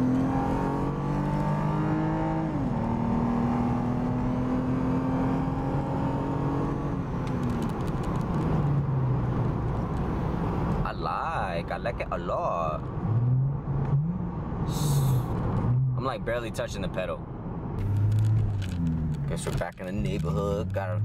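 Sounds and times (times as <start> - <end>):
car engine accelerating: 0.0 - 9.6, 17.8 - 21.0.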